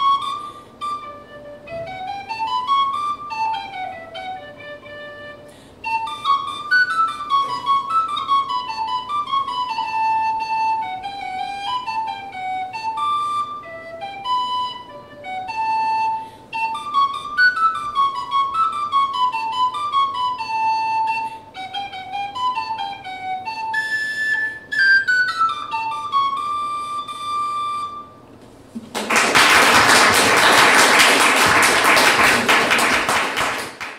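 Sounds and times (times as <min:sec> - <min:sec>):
tin whistle melody: 0:00.0 - 0:28.4
audience applauding: 0:28.8 - 0:33.9.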